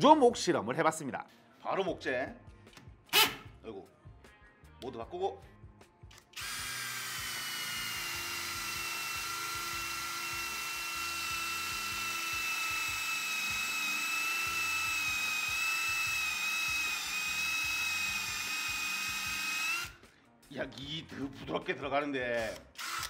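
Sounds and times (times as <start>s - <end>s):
power drill grinding into wood: 6.4s - 20.0s, 22.4s - 23.0s.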